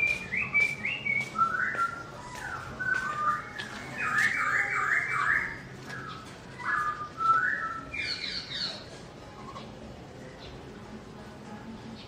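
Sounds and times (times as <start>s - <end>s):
laughingthrush singing whistled phrases: 0.0s - 8.8s.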